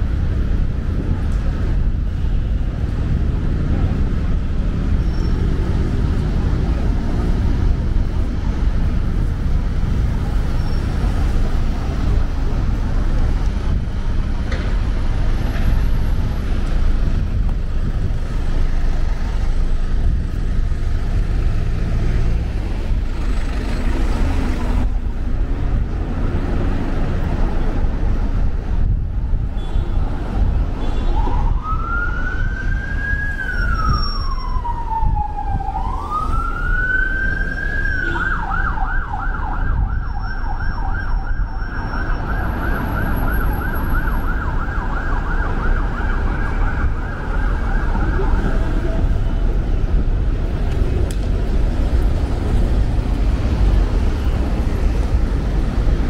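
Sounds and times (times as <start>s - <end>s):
buses and cars passing close: 0.0s - 56.0s
city road traffic rumble: 0.0s - 56.0s
emergency vehicle siren wailing: 30.3s - 50.0s.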